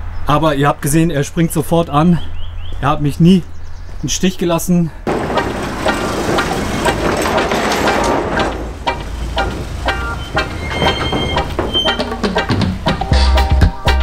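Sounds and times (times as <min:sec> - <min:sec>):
diesel engine idling: 0:05.1 - 0:13.4.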